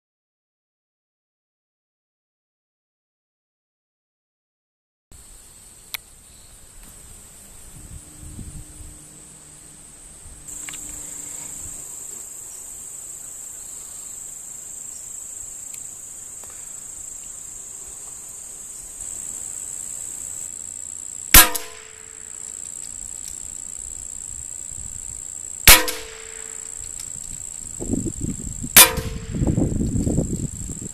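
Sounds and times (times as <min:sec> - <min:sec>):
insects buzzing: 0:05.1 - 0:30.9
rifle shots: 0:21.3 - 0:22.2, 0:25.7 - 0:26.6, 0:28.8 - 0:29.4.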